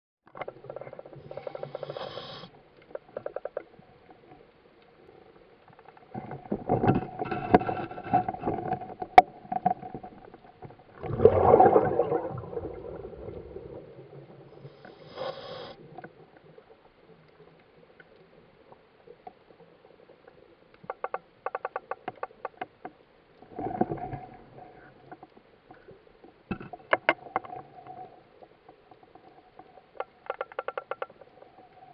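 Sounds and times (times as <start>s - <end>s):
fish clicking underwater: 5.9s - 13.9s, 29.9s - 31.5s.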